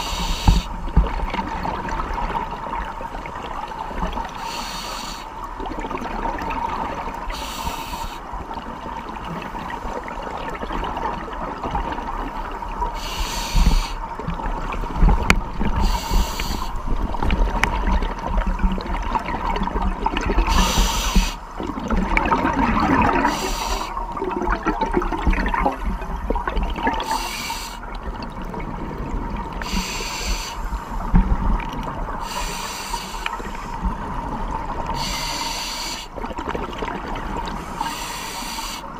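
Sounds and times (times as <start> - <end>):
diver breathing through regulator: 0.0 - 0.8, 4.4 - 5.3, 7.3 - 8.2, 13.0 - 14.0, 15.7 - 16.8, 20.5 - 21.4, 23.1 - 24.0, 27.0 - 27.9, 29.6 - 31.1, 32.2 - 33.9, 34.9 - 36.2, 37.5 - 38.9.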